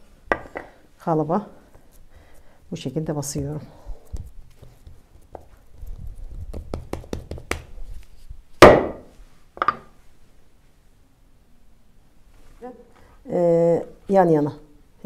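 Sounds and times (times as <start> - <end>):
wooden mold thunk: 8.6 - 9.9.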